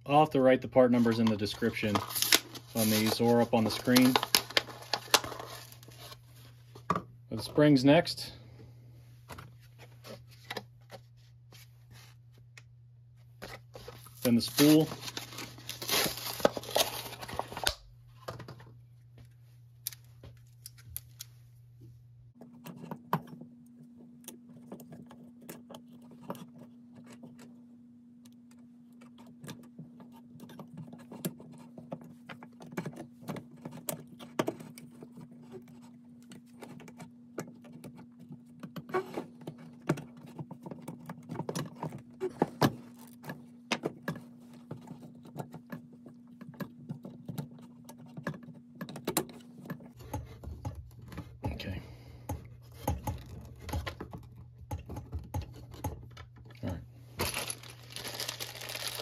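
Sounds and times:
plastic packaging tearing: 0:01.8 - 0:06.2, 0:14.1 - 0:17.8, 0:57.2 - 0:59.0.

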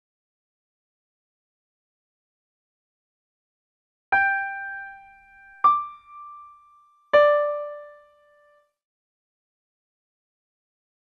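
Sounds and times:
piano-like keyboard notes: 0:04.1 - 0:08.8.

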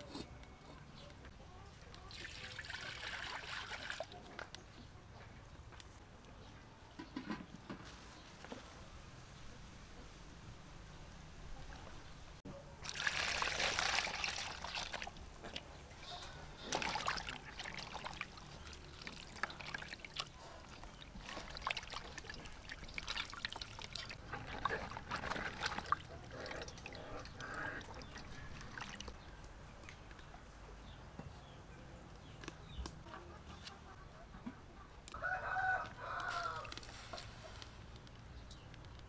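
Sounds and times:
water splashing in metal bowl: 0:12.8 - 0:15.2, 0:16.6 - 0:29.2
water drips: 0:16.6 - 0:30.2.

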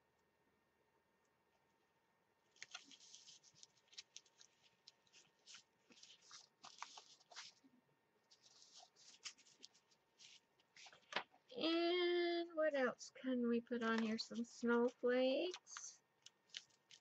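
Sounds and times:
sticker peeled and rubbed down: 0:02.5 - 0:07.6, 0:08.3 - 0:11.2, 0:16.4 - 0:17.0
paper rustling and crinkling: 0:02.5 - 0:07.7, 0:08.3 - 0:11.6, 0:13.8 - 0:17.0.

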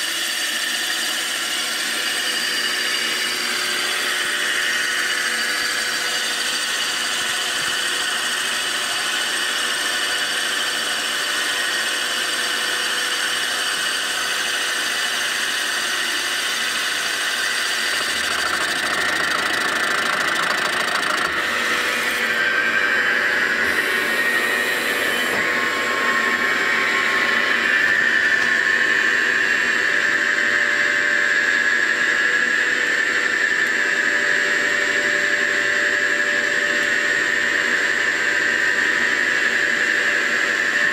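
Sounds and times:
milling machine whine and squeal: 0:00.0 - 0:40.9.

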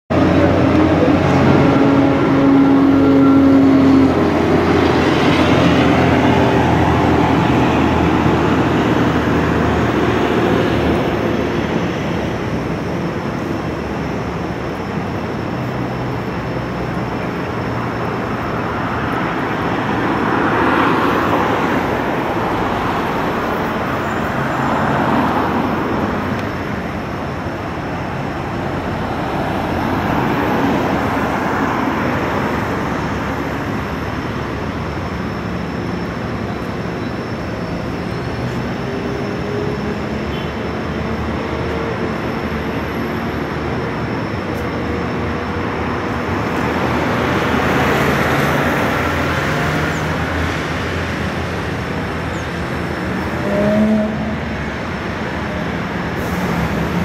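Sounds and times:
traffic wash: 0:00.1 - 0:57.0
vehicle engine droning: 0:00.1 - 0:57.0
vehicles passing: 0:00.1 - 0:57.0.

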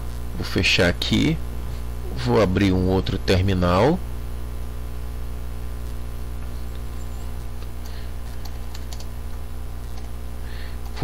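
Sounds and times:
low electrical hum: 0:00.0 - 0:11.0
computer mouse and keyboard clicks: 0:07.6 - 0:09.1, 0:09.8 - 0:10.2.

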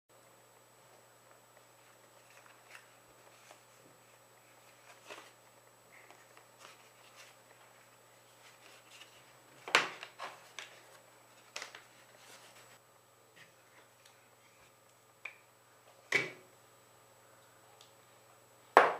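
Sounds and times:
stiff paper rustling: 0:01.9 - 0:12.8.

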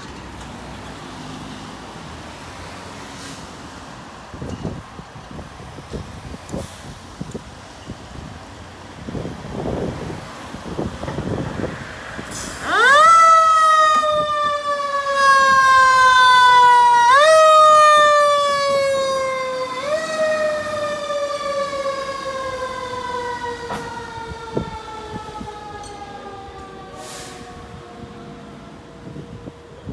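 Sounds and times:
fire engine siren: 0:09.0 - 0:29.9.

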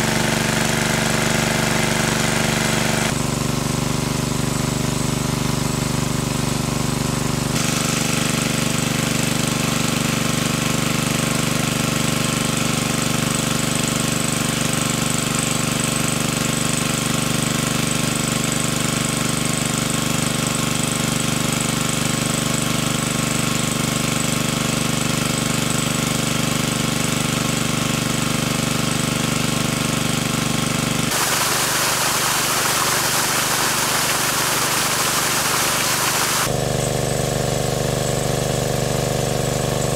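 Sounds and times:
engine-driven water pump humming: 0:00.0 - 0:20.5, 0:29.6 - 0:39.9
water gushing and splashing: 0:31.1 - 0:36.5.

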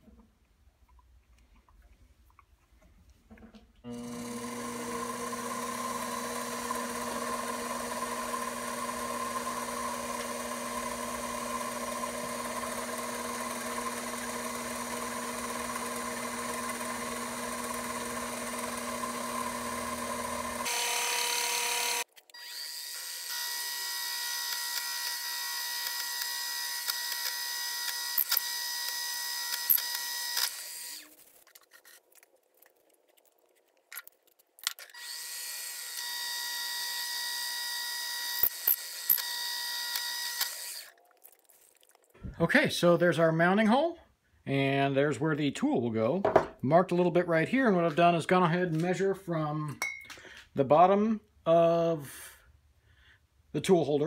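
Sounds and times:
lathe machine whine: 0:03.9 - 0:31.0
drill bit cutting metal: 0:03.9 - 0:31.1, 0:34.8 - 0:40.9.

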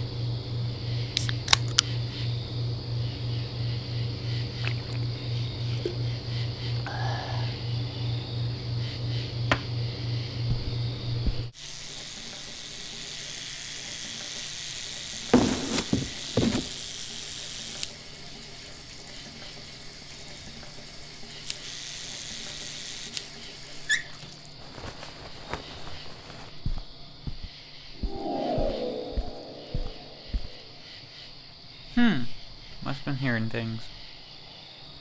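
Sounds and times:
low pulsing hum: 0:28.0 - 0:31.0.

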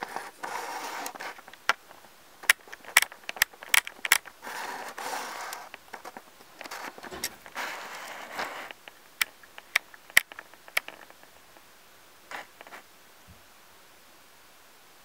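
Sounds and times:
sharp clicks of chips and claws: 0:01.1 - 0:04.4, 0:08.6 - 0:11.3.

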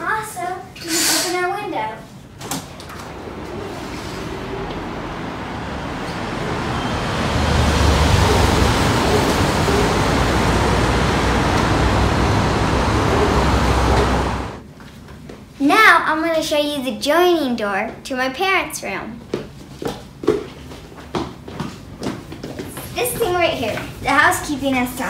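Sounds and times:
city street traffic: 0:02.6 - 0:14.6.

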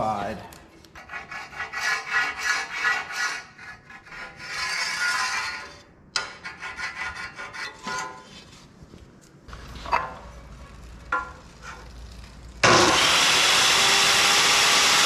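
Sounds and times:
marker scraping on steel plate: 0:01.0 - 0:08.7.

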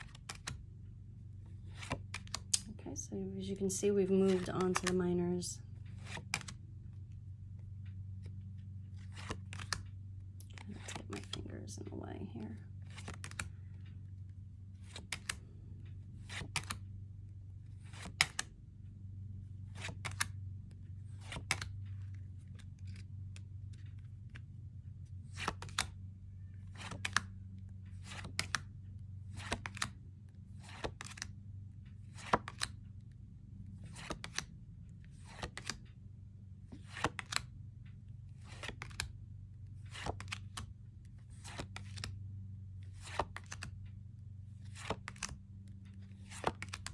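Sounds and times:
low hum: 0:00.0 - 0:46.9
cards snapping down: 0:35.2 - 0:35.8, 0:43.0 - 0:43.7, 0:44.7 - 0:45.4.

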